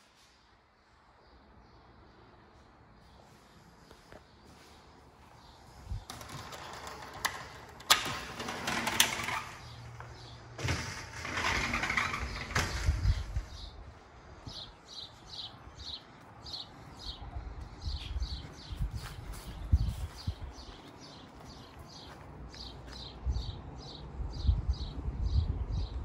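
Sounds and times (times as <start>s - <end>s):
sliding glass door rattling: 6.0s - 13.8s.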